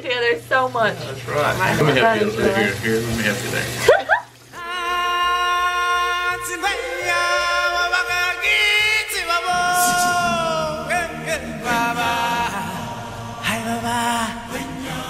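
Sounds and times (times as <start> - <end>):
person singing long notes: 4.5 - 15.0
music with bass: 5.8 - 15.0.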